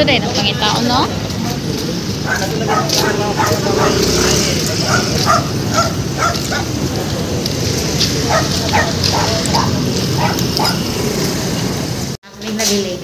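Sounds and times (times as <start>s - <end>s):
roadside noise: 0.0s - 13.0s
dog barking: 2.2s - 6.8s, 8.2s - 10.9s.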